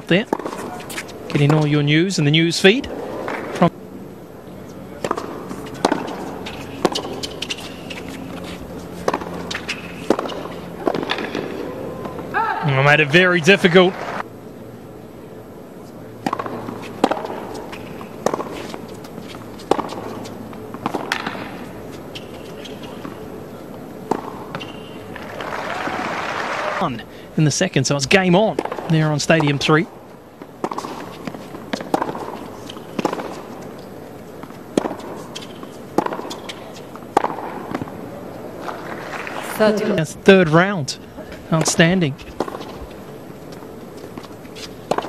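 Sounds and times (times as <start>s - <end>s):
tennis ball racket hits: 0.2s - 1.7s, 5.0s - 12.2s, 16.2s - 23.3s, 30.4s - 38.0s, 41.5s - 45.0s.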